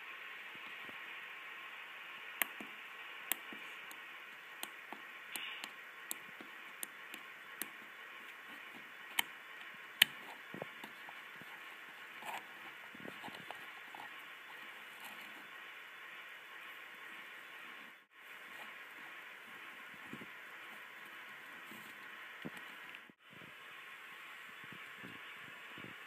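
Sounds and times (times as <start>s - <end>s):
steady hiss: 0.0s - 26.0s
push buttons clicking: 4.6s - 7.8s.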